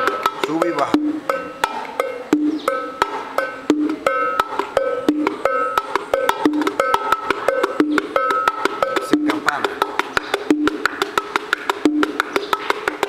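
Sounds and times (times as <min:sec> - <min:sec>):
bongos played by hand: 0:00.0 - 0:13.0.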